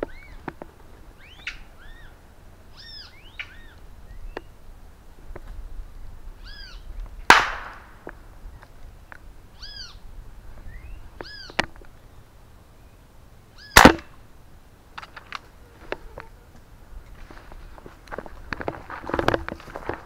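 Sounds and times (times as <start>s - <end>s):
bird calls: 0.0s - 4.6s, 5.9s - 7.1s, 9.5s - 14.2s
air rifle shots: 7.3s - 8.0s, 13.8s - 14.2s.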